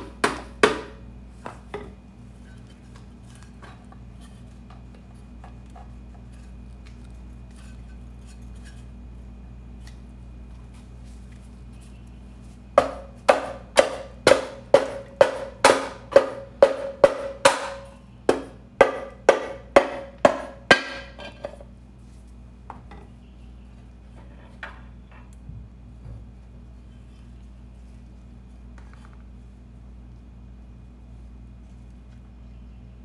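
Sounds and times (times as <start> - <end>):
knocks on metal cover: 12.8 - 21.5.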